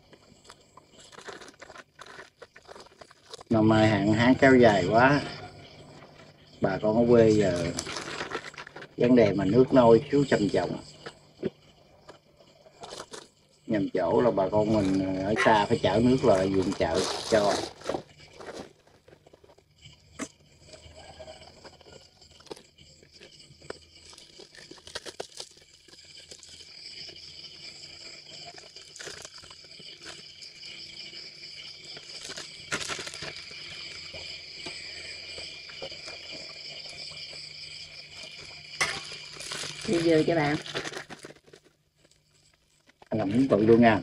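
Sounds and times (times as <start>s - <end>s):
insects chirping: 0.0s - 44.0s
plastic bags crinkling: 0.9s - 3.5s, 7.6s - 9.0s, 16.3s - 19.6s, 24.0s - 26.6s, 32.0s - 34.0s, 38.3s - 42.2s.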